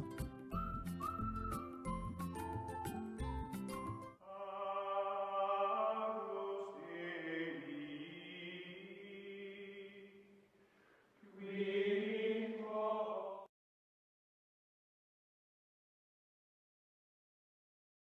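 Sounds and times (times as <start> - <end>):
choral chant: 4.2 - 10.3, 11.2 - 13.5.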